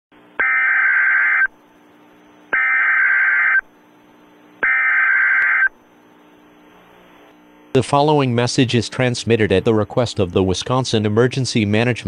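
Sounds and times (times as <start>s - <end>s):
digital data burst tones: 4.6s - 5.7s.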